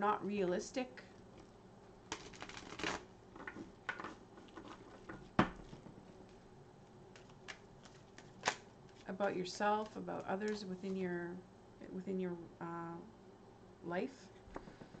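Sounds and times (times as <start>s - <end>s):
cards rustling: 2.1s - 6.4s, 7.1s - 11.0s.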